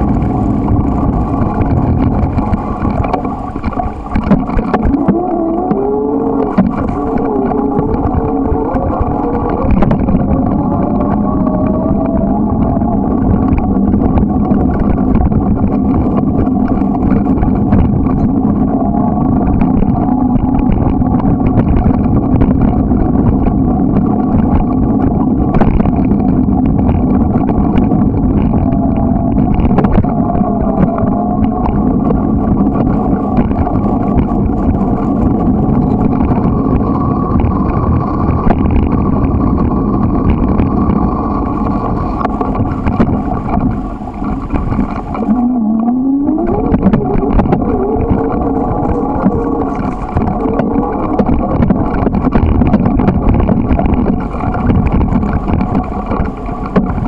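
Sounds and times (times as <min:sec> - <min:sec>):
bicycle rolling on gravel: 0:00.0 - 0:57.0
faint wavering hum: 0:00.0 - 0:57.0.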